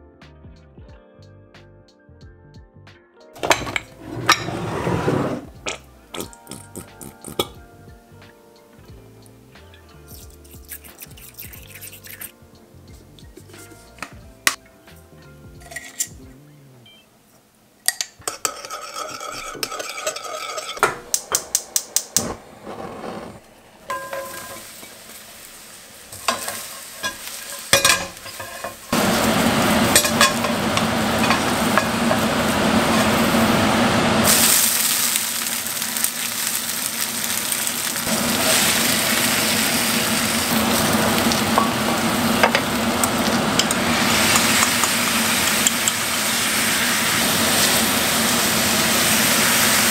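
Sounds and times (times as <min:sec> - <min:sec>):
spoon clinking against ceramic bowl: 0:05.7 - 0:07.6, 0:17.9 - 0:21.5
wooden spatula stirring: 0:18.2 - 0:21.2
mushrooms sizzling in frying pan: 0:23.4 - 0:49.9.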